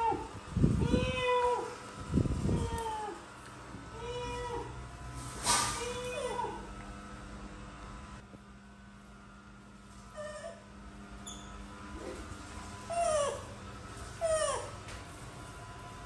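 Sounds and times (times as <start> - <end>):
kitten mewing: 0.8 - 1.7, 5.7 - 6.7.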